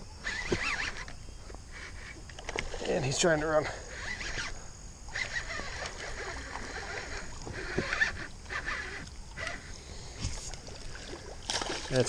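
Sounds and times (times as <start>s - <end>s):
fishing reel cranking: 0.2s - 10.2s
water splashing: 5.6s - 12.0s.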